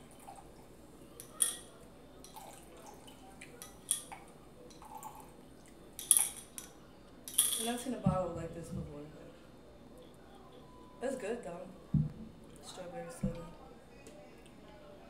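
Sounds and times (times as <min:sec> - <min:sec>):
glass and ice clinking: 0:01.2 - 0:02.6, 0:03.5 - 0:05.2, 0:06.0 - 0:07.9
liquid gurgling and dripping: 0:02.2 - 0:05.8
soda pouring into a glass: 0:04.8 - 0:05.4.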